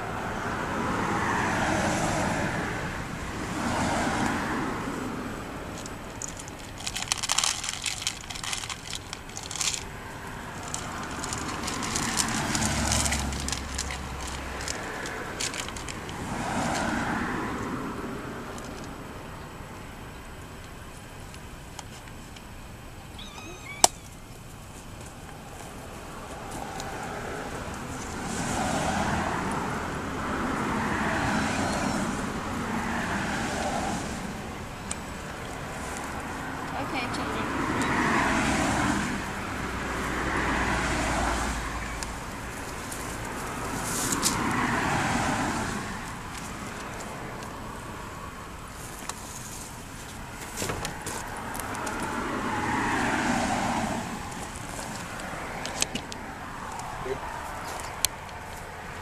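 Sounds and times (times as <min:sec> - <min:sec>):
road traffic hum: 0:00.0 - 0:59.0
paws crunching dry leaves: 0:06.9 - 0:15.3.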